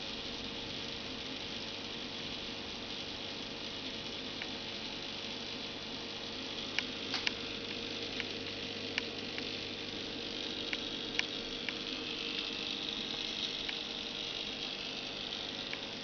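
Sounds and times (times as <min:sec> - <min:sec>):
aquarium pump hissing and humming: 0:00.0 - 0:16.0
small clicks: 0:06.7 - 0:09.6, 0:10.6 - 0:14.0.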